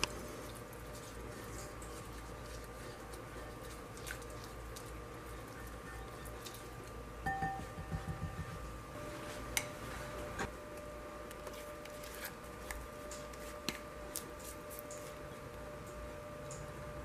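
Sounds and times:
faint steady hum: 0.0s - 17.0s
bowl and spatula tapping baking dish: 7.3s - 8.7s.

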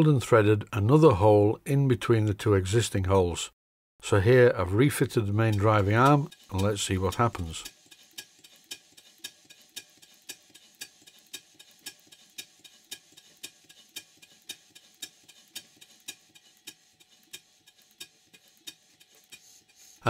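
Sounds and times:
model steam engine ticking: 4.3s - 20.0s.

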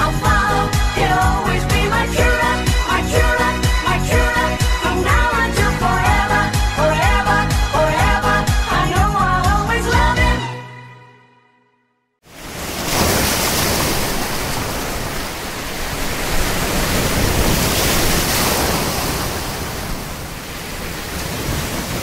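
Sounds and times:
ocean surf rushing: 12.3s - 22.0s.

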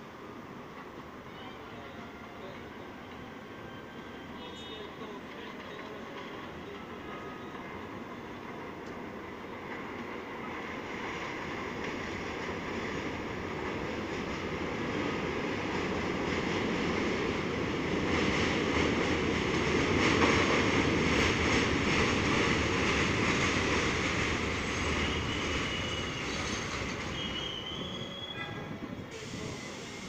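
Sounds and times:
subway train wheels on steel: 0.0s - 30.0s
wheel and brake squeal: 25.0s - 30.0s.

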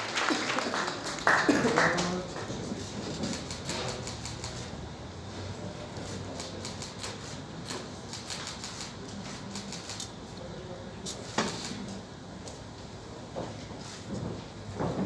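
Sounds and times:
murmur of voices: 0.0s - 14.0s
camera shutter clicks: 8.1s - 9.0s.

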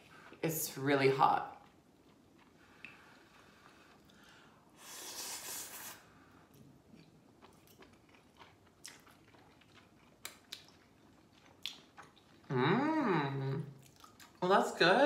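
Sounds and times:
people chewing noodles: 1.5s - 14.4s
wet mouth clicks and smacks: 7.0s - 10.8s, 11.6s - 12.2s.

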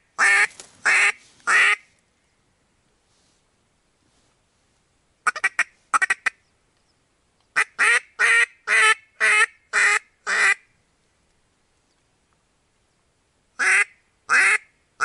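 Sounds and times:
duck quacking: 0.2s - 1.8s, 5.2s - 6.4s, 7.6s - 10.6s, 13.6s - 14.7s.

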